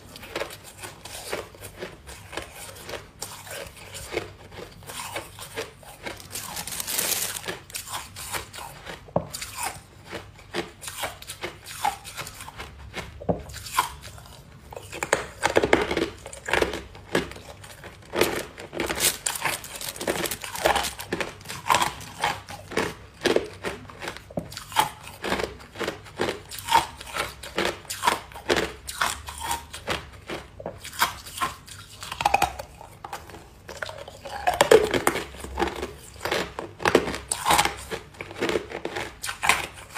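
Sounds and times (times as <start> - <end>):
ice crunching in mouth: 0.0 - 39.9
plastic bag crinkling: 6.0 - 8.0, 18.2 - 21.4.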